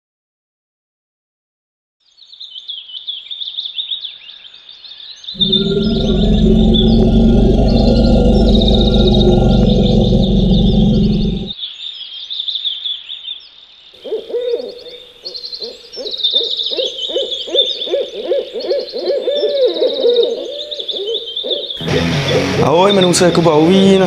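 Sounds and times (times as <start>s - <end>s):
birds chirping and trilling: 4.0s - 12.0s, 14.0s - 24.0s
owl hooting: 14.0s - 22.4s.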